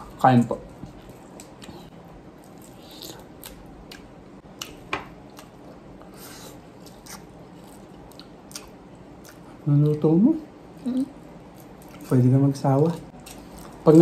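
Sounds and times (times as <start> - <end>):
wet chewing: 0.9 - 10.0.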